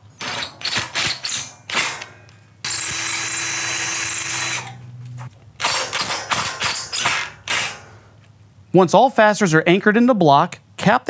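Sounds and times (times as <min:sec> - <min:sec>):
cordless driver driving screw: 0:00.2 - 0:02.1, 0:02.7 - 0:04.8.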